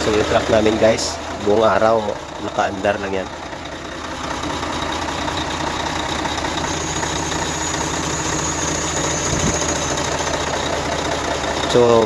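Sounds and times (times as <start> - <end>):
diesel truck engine idling: 0.0 - 12.0.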